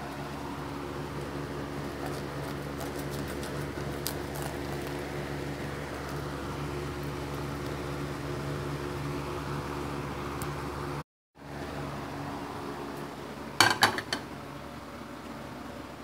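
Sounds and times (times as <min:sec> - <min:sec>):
motor hum: 0:00.0 - 0:13.6
knife crackling through turkey skin: 0:01.8 - 0:08.1.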